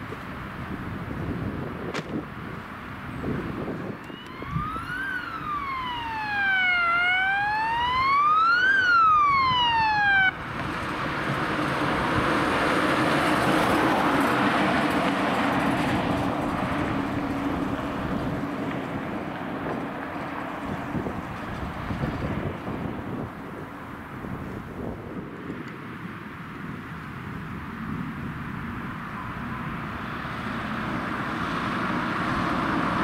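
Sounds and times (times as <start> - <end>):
vehicle driving past: 3.2 - 22.9, 29.0 - 33.0
ambulance siren wailing: 3.9 - 10.5.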